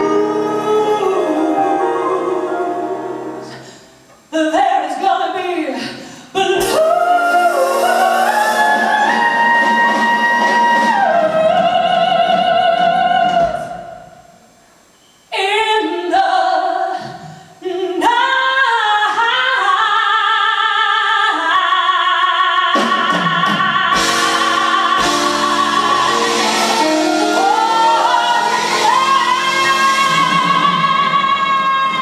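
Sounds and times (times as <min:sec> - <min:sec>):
woman singing blues: 0:04.3 - 0:14.0, 0:17.6 - 0:32.0
swing band playing: 0:06.6 - 0:11.7, 0:22.8 - 0:32.0.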